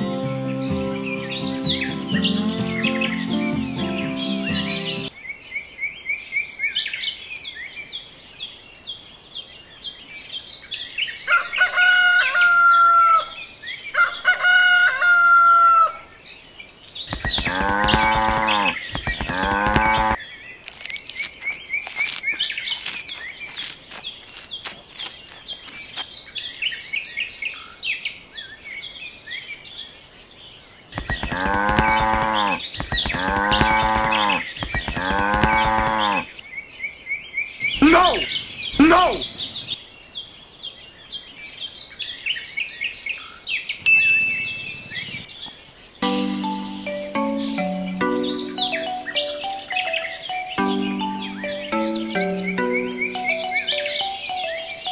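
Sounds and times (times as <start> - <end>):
birds chirping: 0.0 - 54.9
rooster crowing: 11.3 - 13.4, 14.0 - 16.1
farm animal calls: 17.2 - 20.2, 31.0 - 36.4, 37.8 - 39.4.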